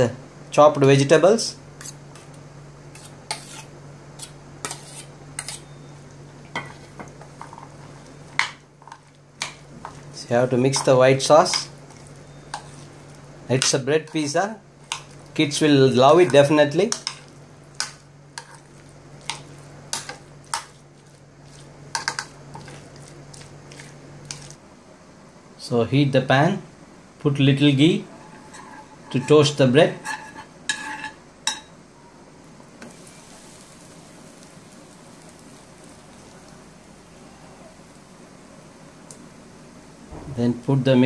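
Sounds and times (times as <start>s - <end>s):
metal spoon scraping steel bowl: 2.9s - 5.7s, 28.1s - 31.2s
spoon stirring thick mixture: 6.6s - 24.6s.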